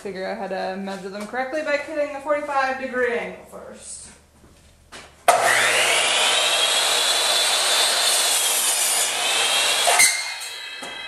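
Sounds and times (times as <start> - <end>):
miter saw cutting wood: 5.3 - 11.0.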